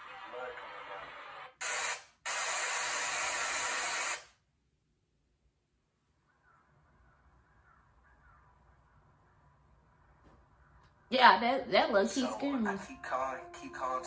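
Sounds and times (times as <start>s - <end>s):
loud static hiss: 0.0s - 4.4s
faint outdoor ambience: 0.0s - 14.0s.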